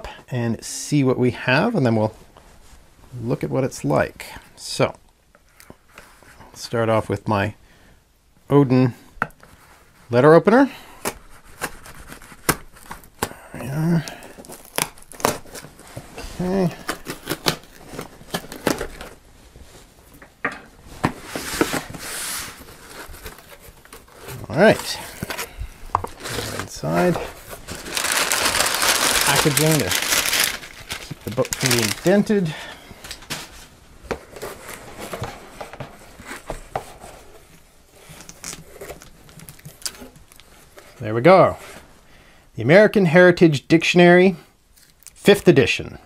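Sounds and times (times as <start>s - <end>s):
cardboard tearing: 14.2s - 19.2s, 26.1s - 32.4s
packing tape being slit: 14.4s - 15.7s, 16.7s - 19.1s, 27.7s - 32.3s
book scraping against cardboard: 21.0s - 32.2s.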